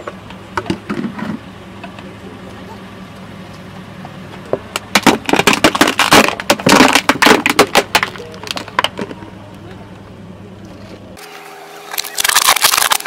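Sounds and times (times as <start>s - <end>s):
low steady car hum: 0.0s - 13.0s
plastic cracking and snapping: 11.9s - 13.0s.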